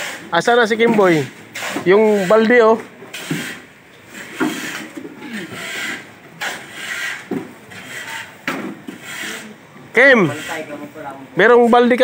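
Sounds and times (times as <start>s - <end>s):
shovel scraping gravel: 0.0s - 8.4s.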